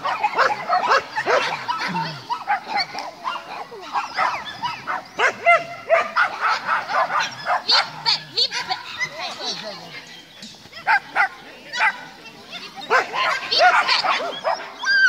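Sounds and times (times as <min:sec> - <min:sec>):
dogs barking: 0:00.0 - 0:10.0, 0:10.8 - 0:15.0.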